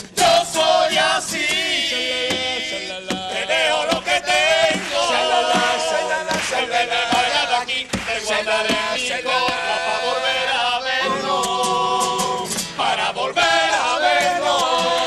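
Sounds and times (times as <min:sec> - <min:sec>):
sharp percussive hits: 0:00.0 - 0:09.9
men singing in chorus: 0:00.0 - 0:15.0.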